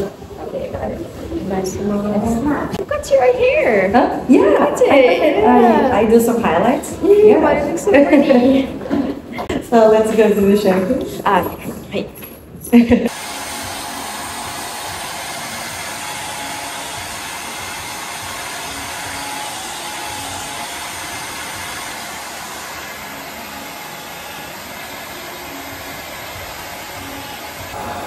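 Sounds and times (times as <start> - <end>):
hair dryer blowing: 13.1 - 28.0.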